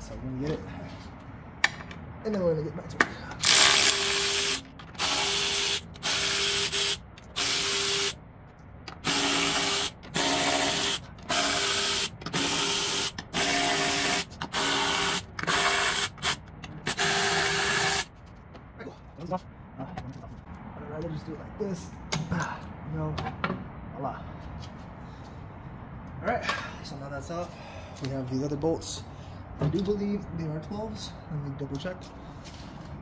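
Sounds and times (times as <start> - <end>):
power ratchet whirring: 3.4 - 8.2, 8.9 - 18.1.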